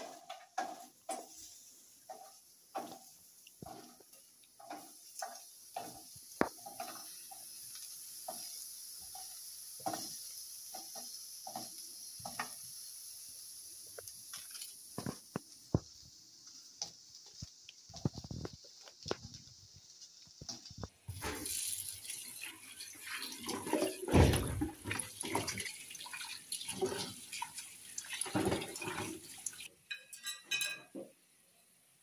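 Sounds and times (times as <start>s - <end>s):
light steady sizzle: 0.0s - 32.0s
onion pieces tapping on grill pan: 2.1s - 12.6s.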